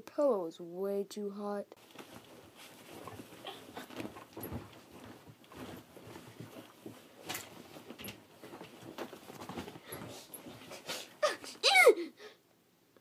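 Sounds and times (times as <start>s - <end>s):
bedding and pillow rustling: 1.8s - 11.6s
boy huffing and grunting: 10.8s - 12.3s.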